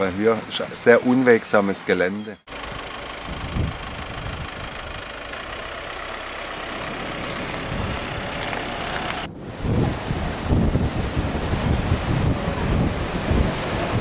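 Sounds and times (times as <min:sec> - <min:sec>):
wind buffeting microphone: 0:03.2 - 0:05.2, 0:07.0 - 0:14.0
choppy sea and surf: 0:07.0 - 0:14.0.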